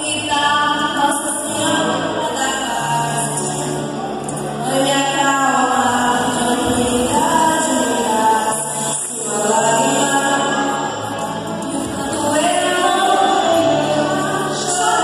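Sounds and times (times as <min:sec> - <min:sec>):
choir singing a hymn: 0:11.7 - 0:15.0.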